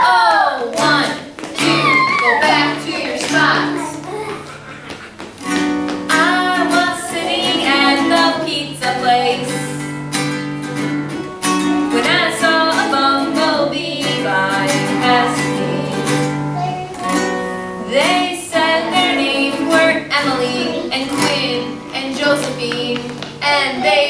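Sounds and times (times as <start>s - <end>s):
woman singing: 0.0s - 4.1s, 6.1s - 9.8s, 11.8s - 16.4s, 17.8s - 24.0s
acoustic guitar strumming: 0.7s - 23.7s.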